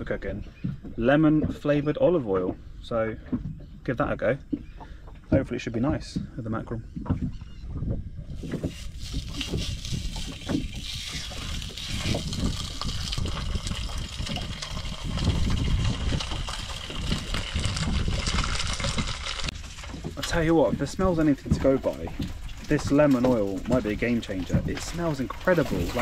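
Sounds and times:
fish sizzling in oil: 8.4s - 19.5s.

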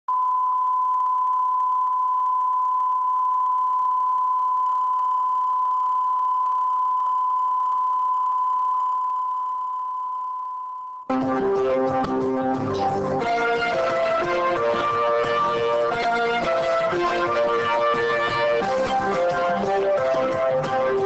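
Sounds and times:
pure reference tone: 0.1s - 11.1s.

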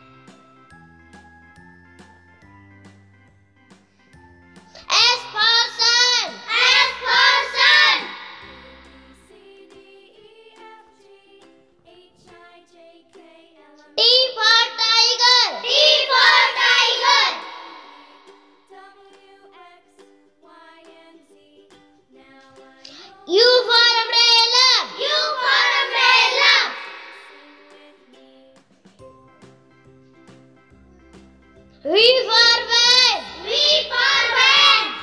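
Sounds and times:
child singing: 4.9s - 8.3s, 9.2s - 28.6s, 31.9s - 35.0s.

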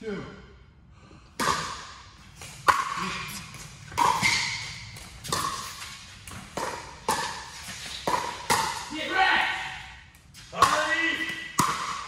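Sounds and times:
paddles hitting plastic ball: 3.9s - 8.9s, 10.2s - 12.0s.

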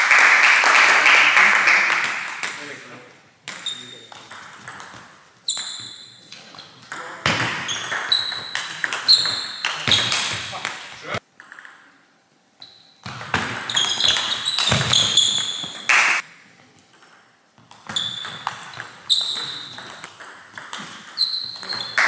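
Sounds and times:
shoes squeaking on floor: 3.5s - 10.6s, 12.6s - 15.9s, 17.6s - 22.0s.

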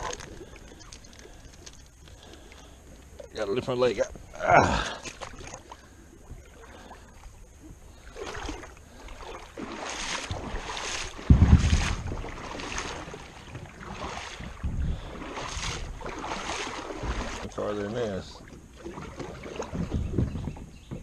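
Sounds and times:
paddle water swishes: 0.0s - 21.0s
heavy low rumble: 11.1s - 15.2s.

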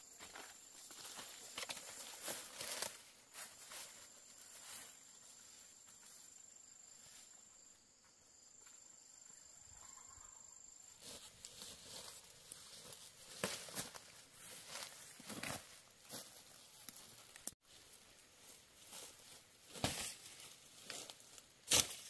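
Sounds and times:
insect high-pitched call: 3.7s - 11.0s.

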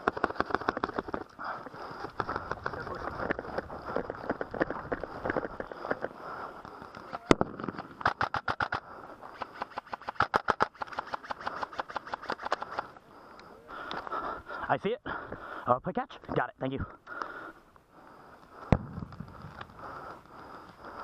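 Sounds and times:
airsoft gun cracks and bursts: 7.2s - 12.9s.

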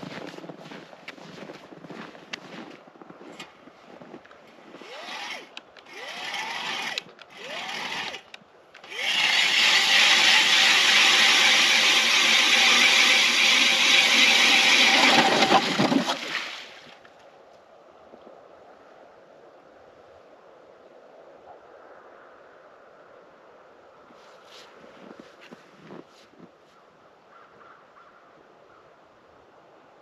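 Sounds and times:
power ice auger drilling: 3.4s - 16.9s.

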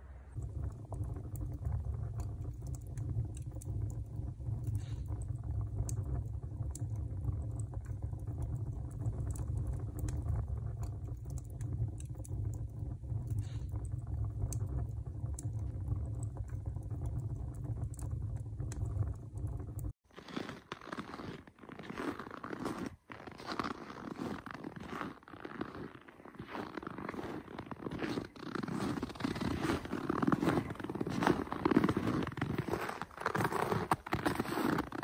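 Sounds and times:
low rumble: 0.0s - 20.0s
faint small clicks: 0.4s - 20.0s.

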